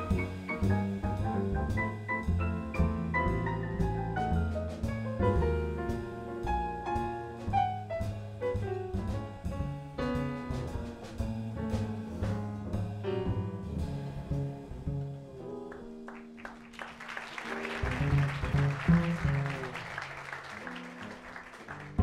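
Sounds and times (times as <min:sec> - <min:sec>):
upright double bass: 0:00.0 - 0:16.4, 0:17.4 - 0:22.0
jazz piano: 0:00.0 - 0:22.0
audience applause: 0:15.7 - 0:22.0.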